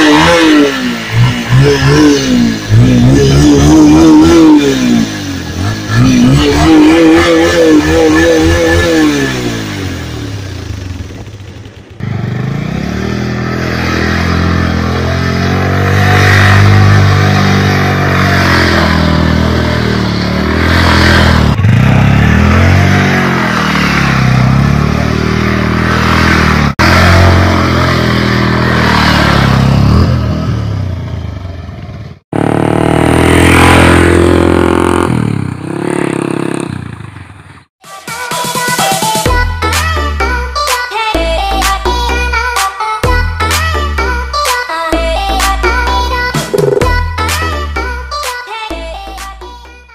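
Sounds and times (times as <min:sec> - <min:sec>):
motorcycle engine revving: 0:00.0 - 0:37.8.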